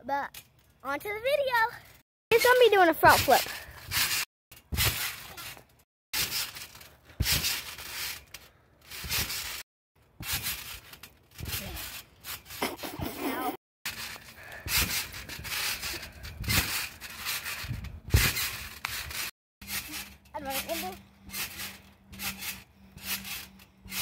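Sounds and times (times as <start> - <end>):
trampoline landing thumps: 2.4 - 9.6, 10.2 - 12.8, 13.9 - 24.0.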